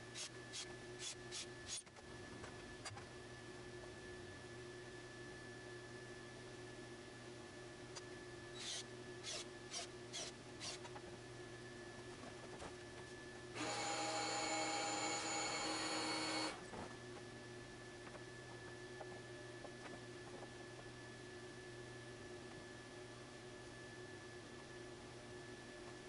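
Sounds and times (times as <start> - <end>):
power tool whirring: 0.1 - 1.9, 8.5 - 11.0, 13.6 - 16.6.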